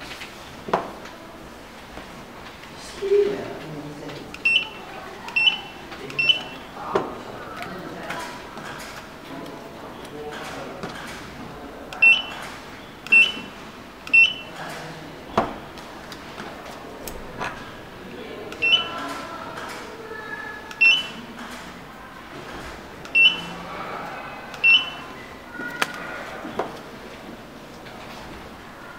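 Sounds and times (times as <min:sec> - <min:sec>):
barcode scanner beeps: 0:04.3 - 0:06.8, 0:11.9 - 0:12.4, 0:13.0 - 0:14.6, 0:18.5 - 0:19.0, 0:20.7 - 0:21.3, 0:23.1 - 0:23.6, 0:24.6 - 0:25.2.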